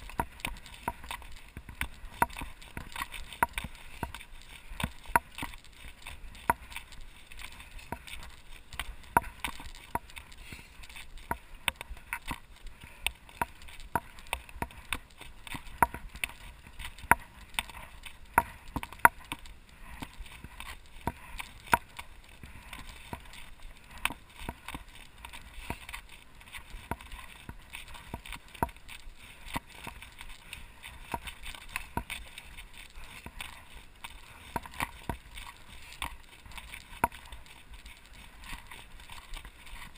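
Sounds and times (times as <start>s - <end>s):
bike rattling over bumps: 0.0s - 39.9s
tyres crunching on gravel: 0.0s - 39.9s.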